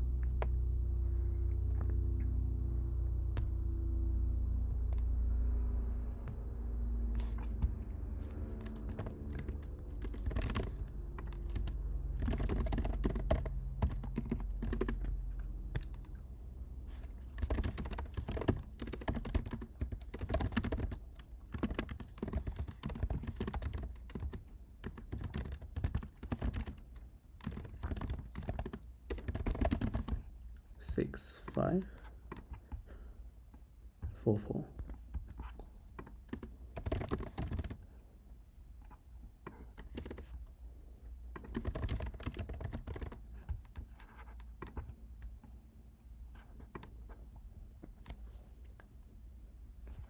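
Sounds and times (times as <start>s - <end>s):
low hum: 0.0s - 18.8s
typing on a keyboard: 8.6s - 16.2s, 16.9s - 30.3s, 36.0s - 37.9s, 39.5s - 40.4s, 41.4s - 45.0s.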